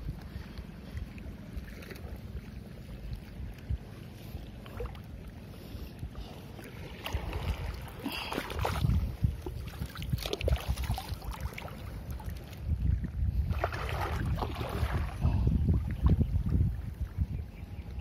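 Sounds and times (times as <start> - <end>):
splashing through shallow water: 0.0 - 3.9, 6.5 - 12.7, 13.4 - 17.0
wind rumbling on microphone: 0.0 - 18.0.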